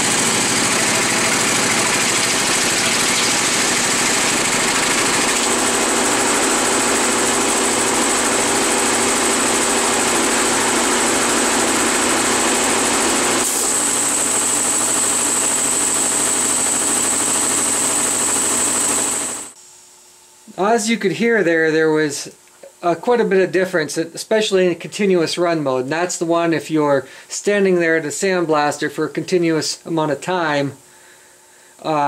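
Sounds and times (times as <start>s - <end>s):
air compressor running: 0.0s - 19.6s.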